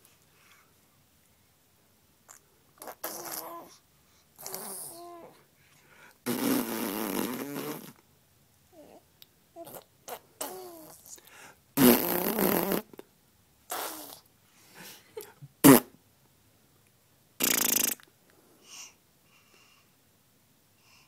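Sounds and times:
baby blowing raspberries: 2.3 - 3.7, 4.4 - 5.1, 6.2 - 8.0, 11.8 - 12.9, 13.7 - 14.3, 17.4 - 18.0.

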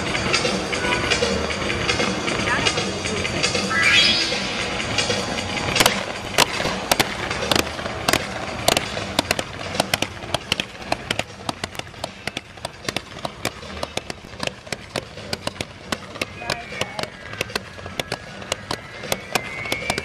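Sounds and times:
fireworks bangs and crackles: 4.6 - 20.0.

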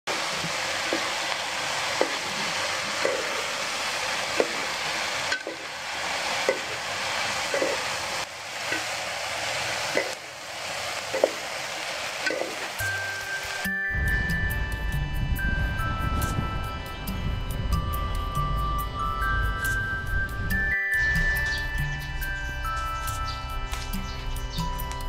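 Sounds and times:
utensil clacking against pan: 0.1 - 1.3, 2.0 - 3.5, 4.4 - 5.7, 6.4 - 6.8, 7.5 - 7.9, 9.9 - 10.2, 11.1 - 11.4, 12.2 - 12.8
food sizzling in wok: 0.1 - 25.0.

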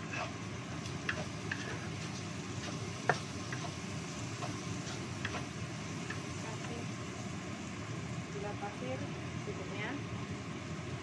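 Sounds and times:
frying sizzle: 0.0 - 11.0
spatula tapping on wok: 2.7 - 3.8.

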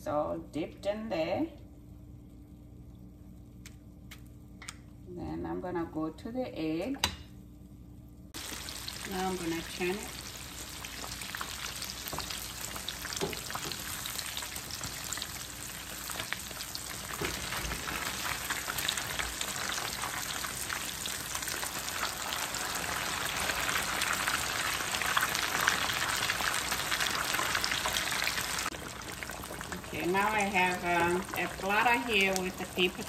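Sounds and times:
fish frying in hot oil: 8.4 - 33.0.

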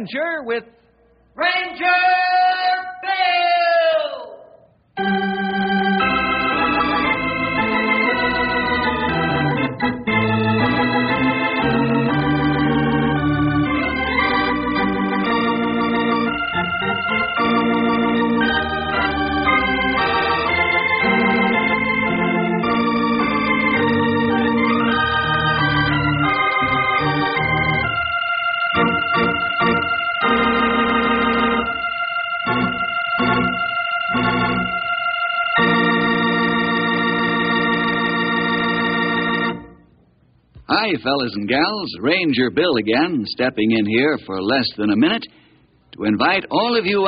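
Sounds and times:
organ playing held chords: 5.0 - 40.0.

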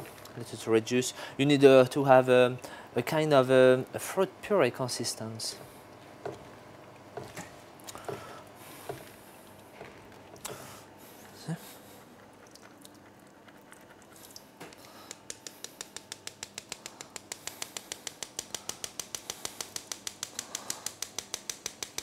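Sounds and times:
rapid mechanical ticking: 15.2 - 22.0.

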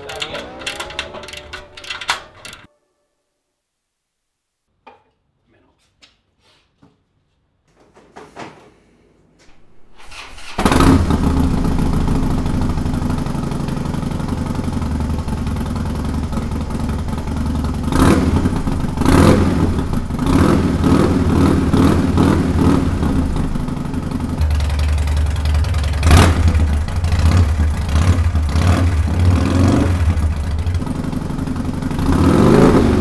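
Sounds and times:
motorcycle engine idling: 11.0 - 33.0.

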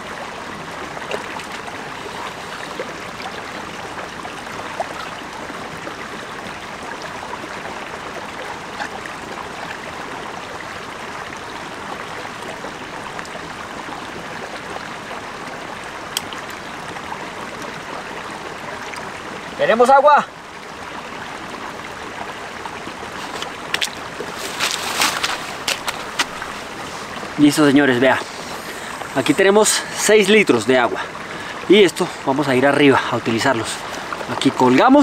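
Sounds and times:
stream running over stones: 0.0 - 35.0.

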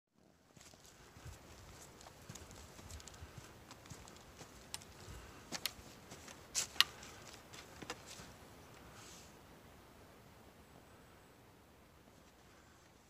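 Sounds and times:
footsteps crunching on dry leaves: 0.6 - 8.4.

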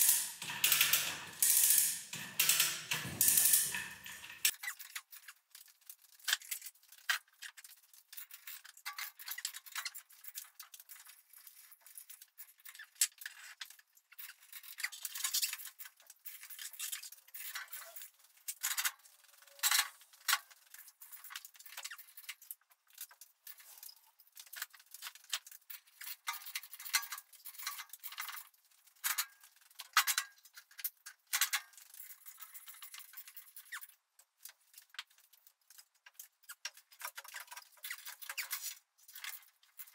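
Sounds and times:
chain hoist clinking and rattling: 0.0 - 5.0, 14.2 - 34.6.

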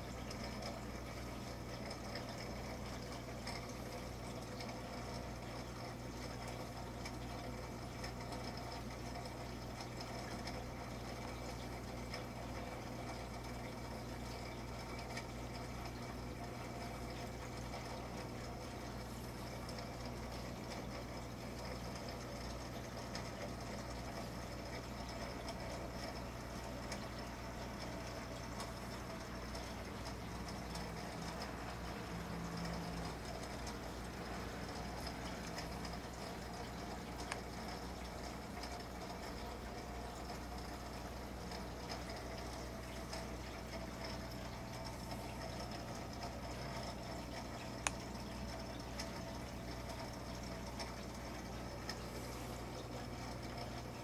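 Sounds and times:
aquarium filters humming: 0.0 - 54.0
soft watery hiss: 15.5 - 54.0.

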